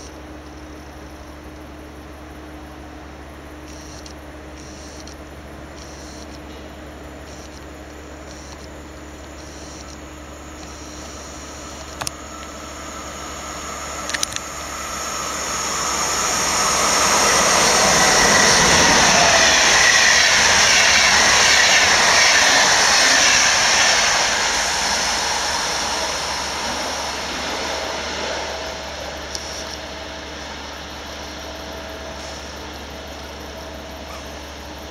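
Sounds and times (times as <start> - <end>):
passenger train passing: 10.0 - 34.9.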